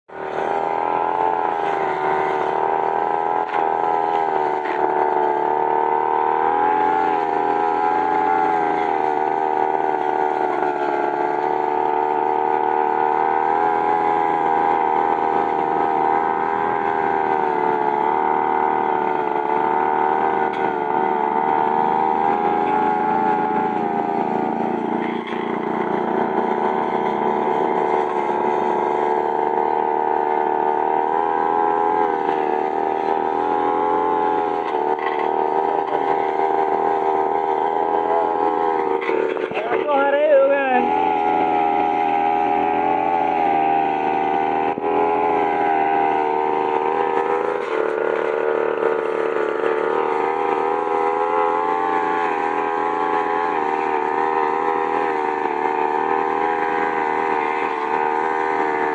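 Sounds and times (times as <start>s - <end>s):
brush cutter cutting grass: 0.1s - 58.9s.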